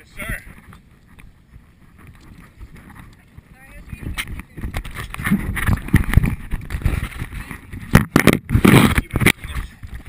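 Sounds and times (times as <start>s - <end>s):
fingers rubbing on camera: 0.4s - 10.0s.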